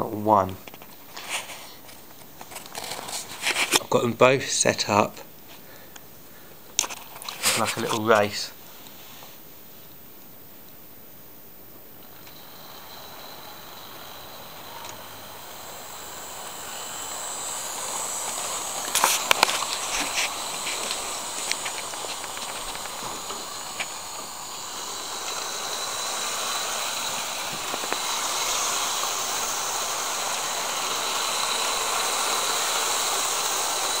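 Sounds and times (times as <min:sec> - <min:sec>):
sharp clicks and rattles: 0:06.8 - 0:08.3, 0:12.0 - 0:34.0
electric motors whining: 0:12.0 - 0:34.0.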